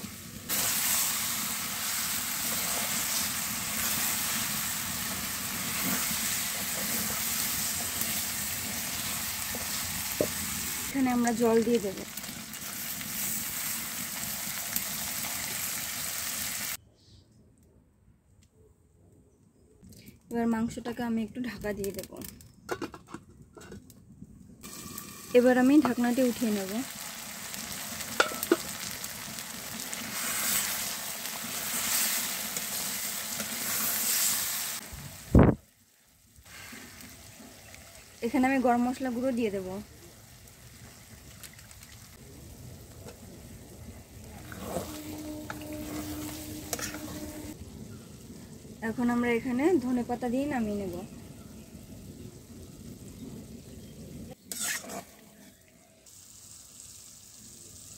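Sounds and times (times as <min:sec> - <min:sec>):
curry sizzling in a metal pan: 0:00.0 - 0:16.8, 0:24.6 - 0:57.9
spatula stirring in pan: 0:44.3 - 0:47.6, 0:54.5 - 0:55.2.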